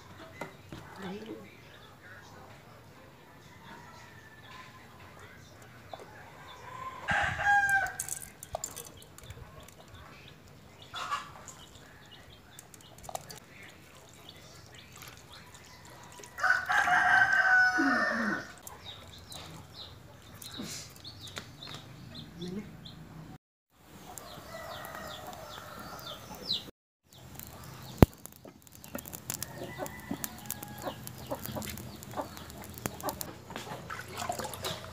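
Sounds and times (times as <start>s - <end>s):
rooster crowing: 6.6s - 8.1s, 15.8s - 18.6s, 24.2s - 26.2s, 29.4s - 31.4s.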